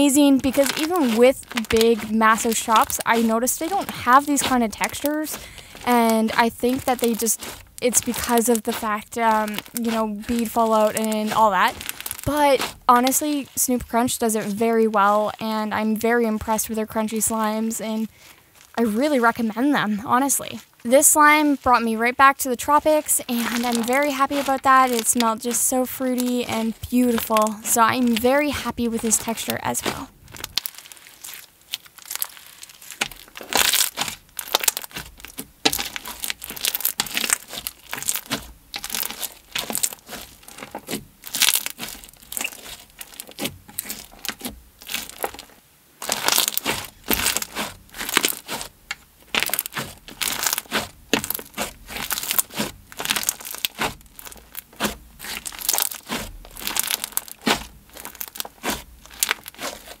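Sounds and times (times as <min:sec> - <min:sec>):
crunchy slime squeezed by hand: 0:00.0 - 0:14.1, 0:22.6 - 1:00.0.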